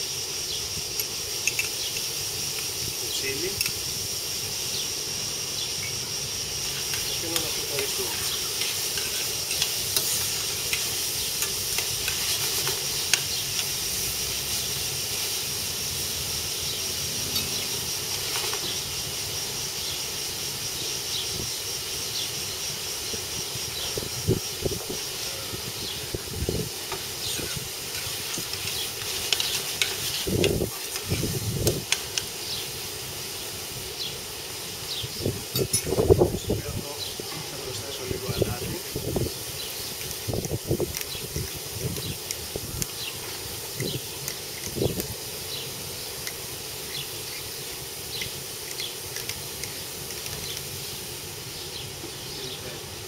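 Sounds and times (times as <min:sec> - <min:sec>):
peppers sizzling in oil: 0:00.0 - 0:53.0
spoon scraping metal pan: 0:06.8 - 0:13.3, 0:27.3 - 0:31.2.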